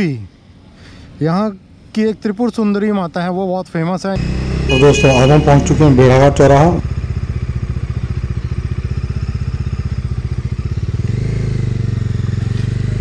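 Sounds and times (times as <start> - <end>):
motorcycle engine running: 4.2 - 13.0.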